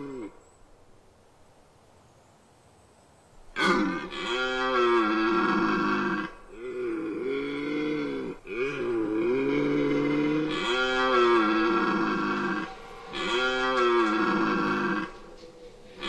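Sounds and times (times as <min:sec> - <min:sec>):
deer stag roaring: 0:00.0 - 0:00.4, 0:03.6 - 0:16.0.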